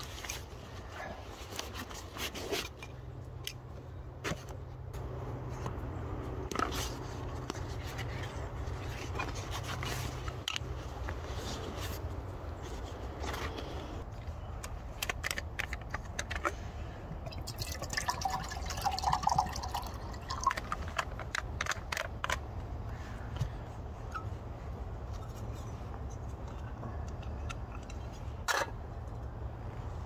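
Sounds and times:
scraping and rustling: 6.4s - 14.3s.

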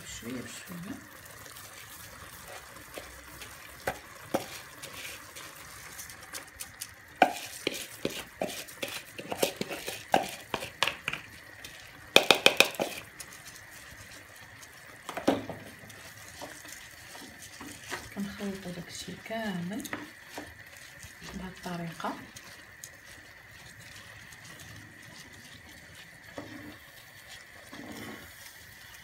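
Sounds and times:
wooden spoon knocking on pot: 3.8s - 4.6s, 7.2s - 11.3s, 12.1s - 13.1s, 15.1s - 15.8s.

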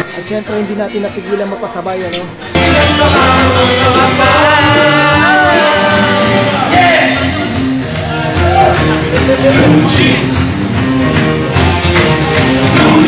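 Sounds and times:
live band playing: 2.1s - 13.0s
people singing along loudly: 2.2s - 8.4s, 12.6s - 13.0s.

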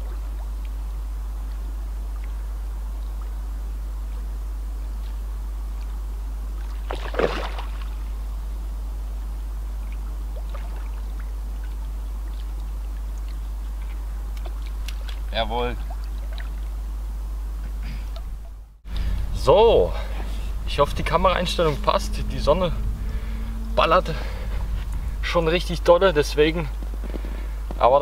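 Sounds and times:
steady low rumble: 0.0s - 28.0s
splash in shallow water: 6.6s - 8.1s, 10.3s - 12.6s, 13.8s - 16.7s.

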